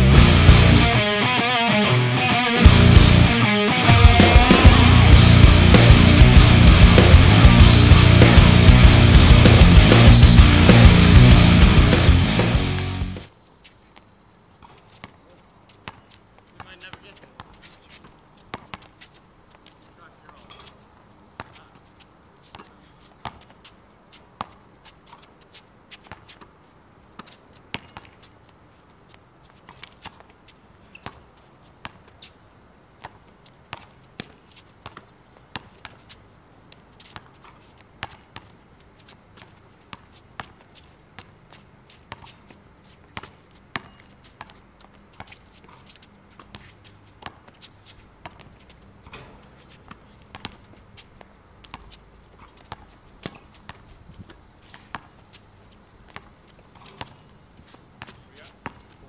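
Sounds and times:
basketball bouncing on hard court: 18.5 - 18.9, 27.7 - 28.2, 38.0 - 38.5, 39.4 - 40.6, 43.1 - 47.6, 48.2 - 50.8, 51.6 - 55.1, 56.1 - 57.3, 58.0 - 59.0.

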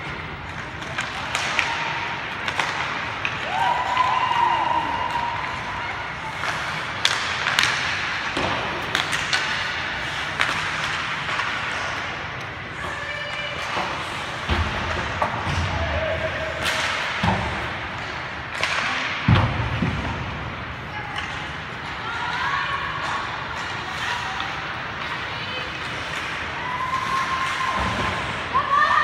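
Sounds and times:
hockey sticks clacking on puck: 0.0 - 20.2, 21.2 - 28.3
skates scraping on ice: 5.0 - 19.1.

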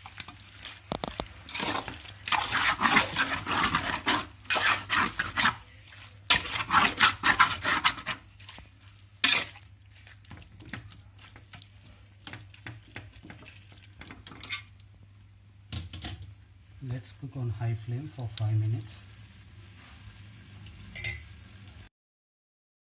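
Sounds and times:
spatula scraping metal pot: 1.0 - 8.3, 9.2 - 9.7.

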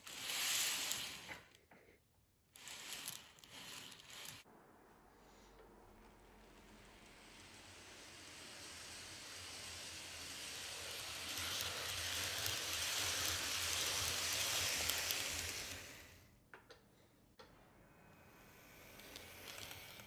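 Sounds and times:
model train whirring past: 0.0 - 1.5, 2.6 - 4.5, 5.8 - 16.2, 18.4 - 20.0
small clicks: 19.0 - 20.0.

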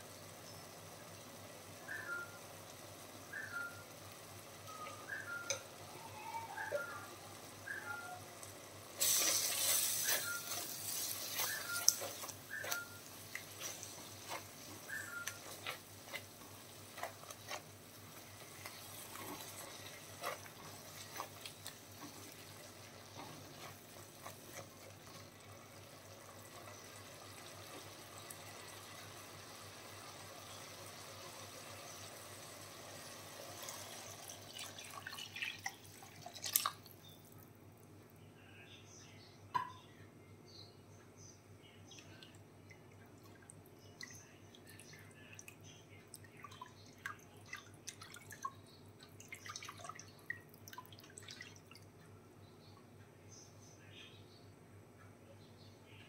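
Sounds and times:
liquid simmering in a pan: 0.0 - 37.2.

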